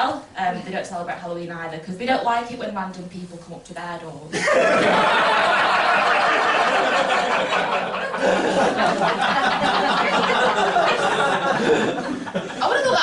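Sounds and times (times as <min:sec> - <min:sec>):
audience laughing: 0:04.4 - 0:13.0.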